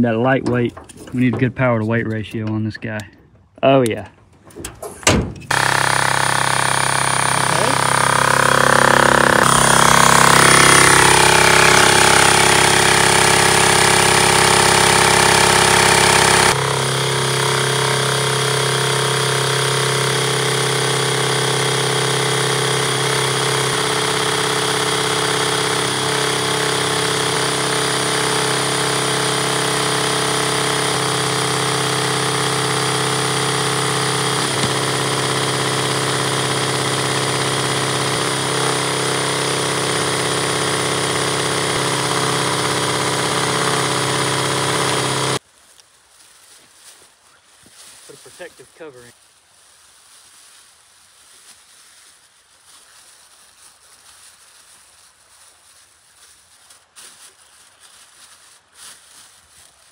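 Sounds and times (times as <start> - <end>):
wire screen vibrating: 2.4 - 45.4
battery drill running: 5.5 - 45.4.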